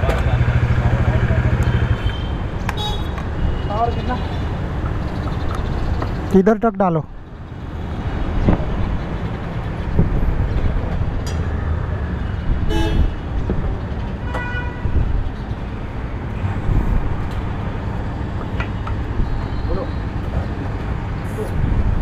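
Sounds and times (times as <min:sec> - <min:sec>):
road traffic rumble: 0:00.0 - 0:22.0
vehicle horn honking: 0:01.8 - 0:03.1, 0:12.7 - 0:13.2, 0:14.2 - 0:14.9.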